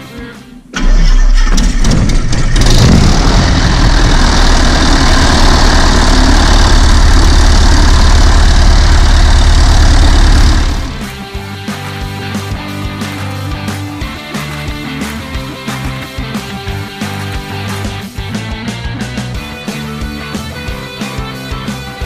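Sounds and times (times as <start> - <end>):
piston aircraft engine starting and idling: 0.7 - 13.2.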